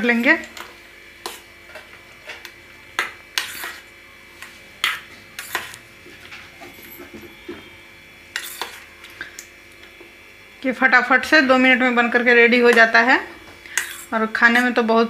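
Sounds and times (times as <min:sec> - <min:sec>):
spoon clinking and scraping metal bowl: 0:00.2 - 0:03.9, 0:04.8 - 0:05.8, 0:08.3 - 0:09.2, 0:13.7 - 0:14.8.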